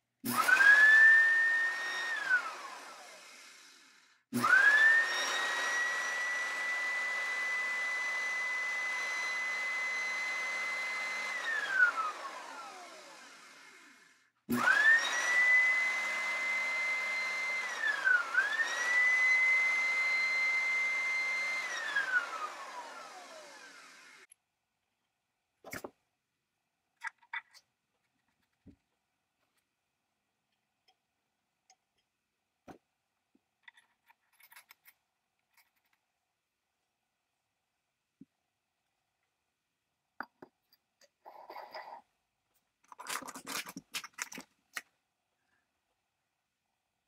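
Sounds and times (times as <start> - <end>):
electric motor whining: 0.4 - 24.3.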